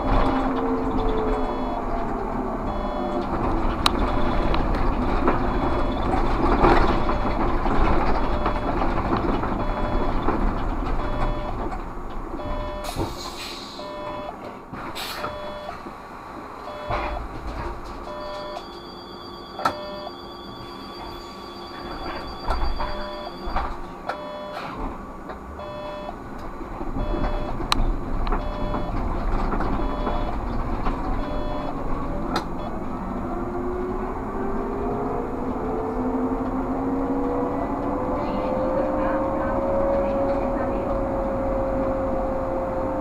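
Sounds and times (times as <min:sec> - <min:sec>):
trolleybus electric drive whine: 0:00.0 - 0:43.0
air hiss: 0:12.8 - 0:13.8.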